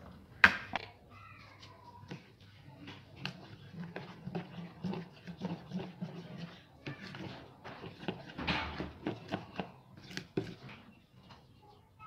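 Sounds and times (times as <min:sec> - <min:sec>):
spoon scraping in plastic bowl: 0:02.0 - 0:10.9.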